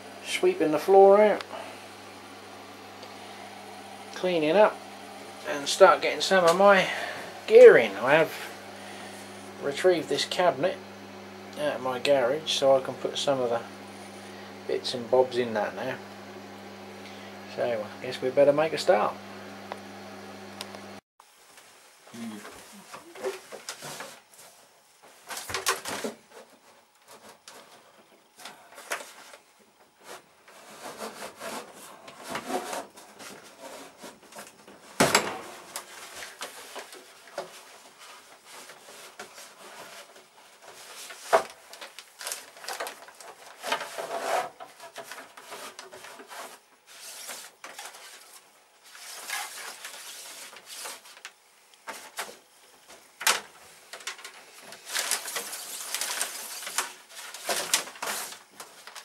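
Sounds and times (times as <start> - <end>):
plastic sheet rustling: 30.0 - 52.4, 53.2 - 59.0.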